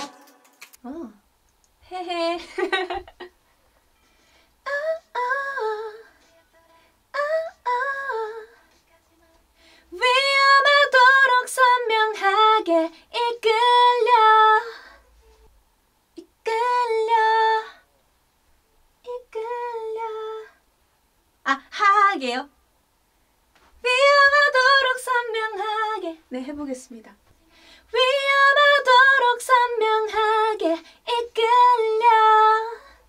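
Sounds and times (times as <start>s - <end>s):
woman singing: 1.8s - 3.0s, 4.6s - 15.0s, 16.2s - 17.8s, 19.0s - 20.6s, 21.5s - 22.5s, 23.8s - 27.2s, 27.9s - 33.0s.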